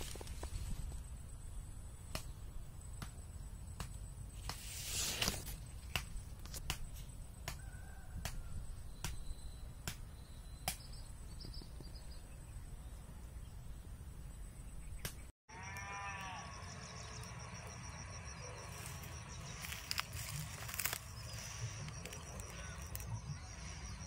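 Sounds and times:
rustle: 0.0 - 3.0, 3.8 - 9.1.

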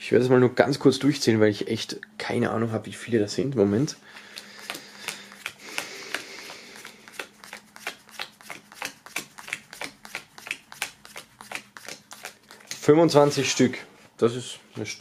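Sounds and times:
cards tapping on wooden table: 4.4 - 12.8.

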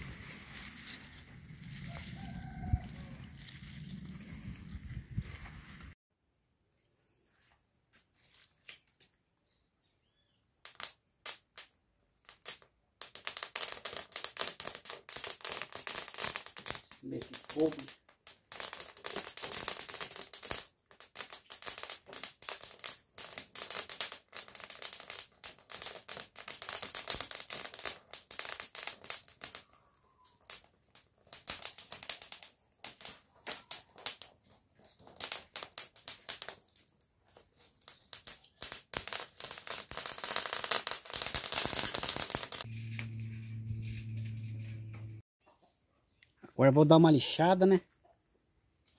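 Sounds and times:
twigs crackling in a wood stove: 0.0 - 5.9, 8.0 - 9.3, 10.6 - 43.3
steady low tone: 42.7 - 45.2.

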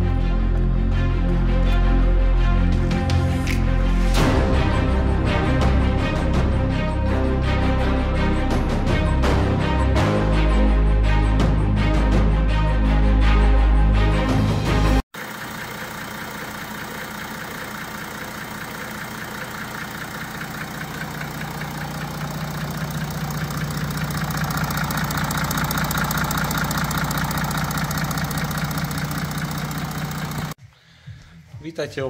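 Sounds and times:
diesel engine idling with rattle: 15.2 - 30.6.

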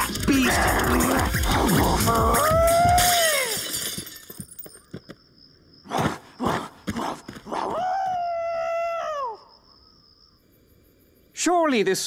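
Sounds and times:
cartoon wolf snarling: 0.0 - 2.5, 5.9 - 7.8
cartoon wolf howling: 0.0 - 3.6, 7.5 - 9.5.

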